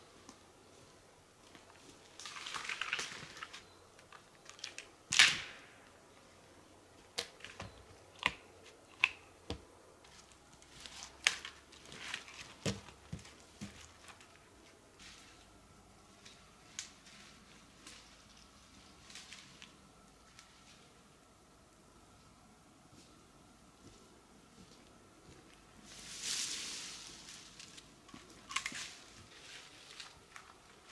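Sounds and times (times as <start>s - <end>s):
forest litter rustling: 0.0s - 5.6s, 10.0s - 15.5s, 16.1s - 21.0s, 23.8s - 30.9s
branches snapping and knocking: 2.1s - 5.7s, 10.6s - 14.4s
loud wood crack: 4.5s - 5.8s.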